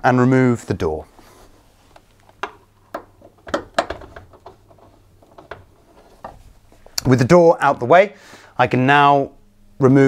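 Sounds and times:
screwdriver clicks and knocks: 2.4 - 4.6.

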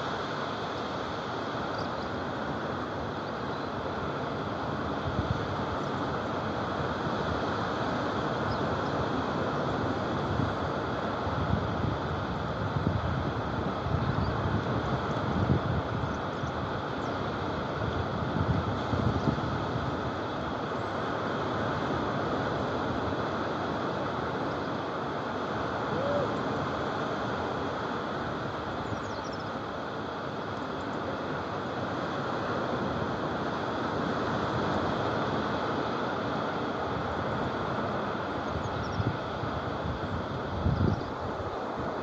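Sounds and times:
small waves breaking on shore: 0.0 - 42.0
wind on microphone: 4.5 - 24.7, 32.0 - 42.0.

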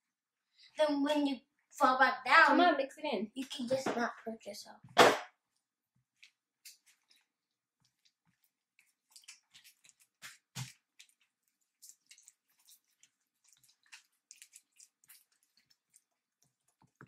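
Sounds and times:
sticky slime squelches: 4.8 - 17.0.

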